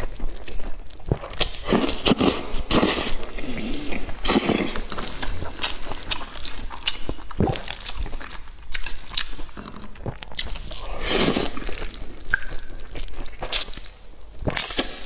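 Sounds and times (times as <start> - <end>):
wet chewing and lip smacks: 0.0 - 15.0
slurping noodles: 1.1 - 6.5, 9.2 - 13.8.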